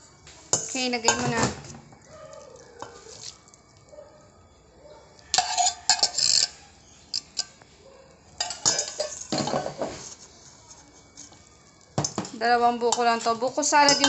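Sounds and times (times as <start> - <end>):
metal spoon clinking in bowl: 5.2 - 6.6, 8.4 - 9.8, 12.0 - 14.0.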